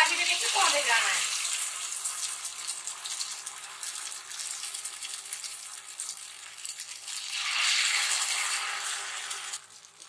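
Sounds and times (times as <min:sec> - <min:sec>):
potatoes deep-frying in hot oil: 0:00.0 - 0:10.0.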